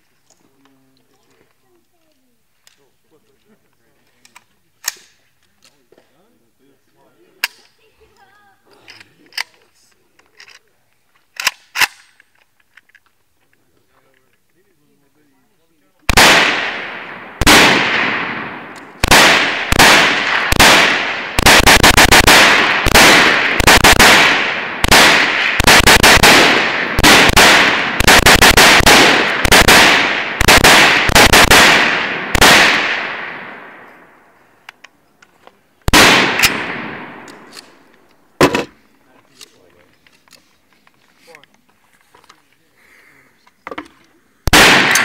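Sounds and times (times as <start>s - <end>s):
rifle shots with echo: 16.1s - 34.3s, 35.8s - 38.7s, 44.4s - 45.0s.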